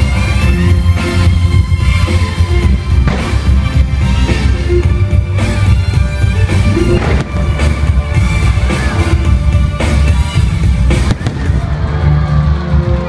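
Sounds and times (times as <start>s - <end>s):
fireworks bangs: 3.0s - 4.2s, 6.8s - 9.0s, 10.9s - 11.7s.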